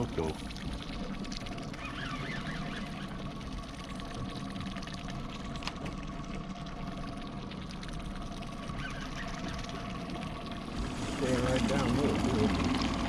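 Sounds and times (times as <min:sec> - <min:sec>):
outboard motor running: 0:00.0 - 0:13.0
water washing at stern: 0:00.0 - 0:13.0
fishing reel ticking: 0:01.0 - 0:05.4.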